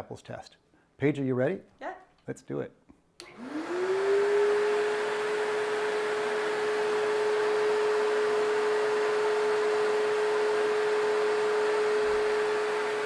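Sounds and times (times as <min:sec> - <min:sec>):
backpack vacuum cleaner running: 0:03.2 - 0:13.0.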